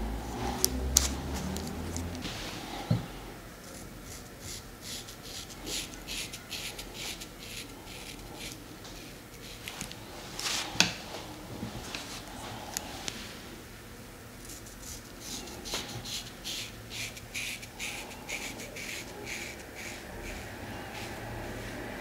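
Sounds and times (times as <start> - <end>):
razor scraping through lather: 4.0 - 8.6, 14.6 - 21.2.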